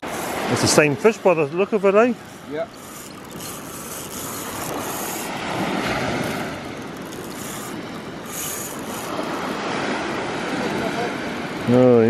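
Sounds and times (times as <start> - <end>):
surf breaking on beach: 9.1 - 11.8.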